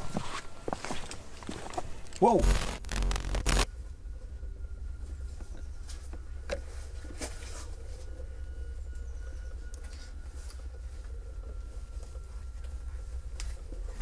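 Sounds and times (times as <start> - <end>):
footsteps scuffing on rocky steps: 0.0 - 2.1
low steady rumble: 2.4 - 14.0.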